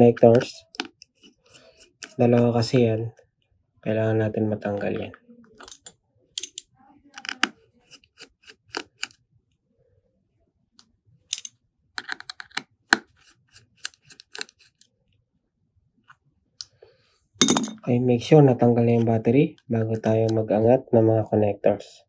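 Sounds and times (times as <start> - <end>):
small tools clicking on phone parts: 5.6 - 9.2, 11.3 - 14.9.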